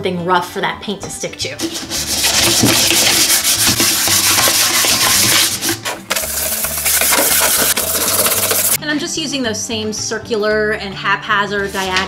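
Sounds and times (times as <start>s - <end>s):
sandpaper rubbing on wood: 1.6s - 8.8s.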